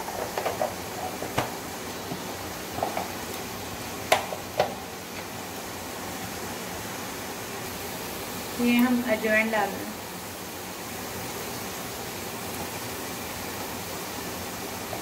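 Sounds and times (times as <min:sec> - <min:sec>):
oil popping: 0:00.0 - 0:05.4
food sizzling in hot oil: 0:00.0 - 0:15.0.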